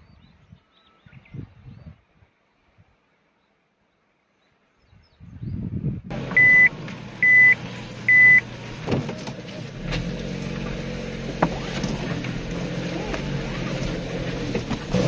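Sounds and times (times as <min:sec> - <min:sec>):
low engine hum: 0:06.0 - 0:15.0
high electronic beeps: 0:06.4 - 0:08.4.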